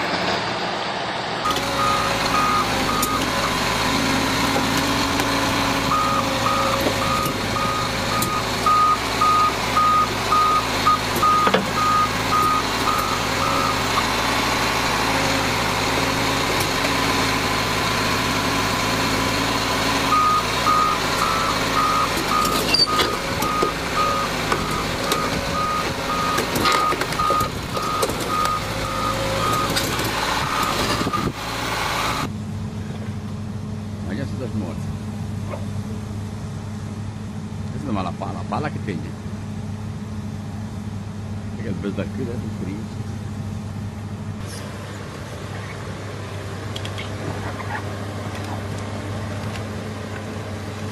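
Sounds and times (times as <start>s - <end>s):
diesel engine running: 0.0s - 50.9s
excavator tracks moving: 0.1s - 32.3s
travel alarm beeping: 1.8s - 3.6s, 5.9s - 14.1s, 20.1s - 29.8s.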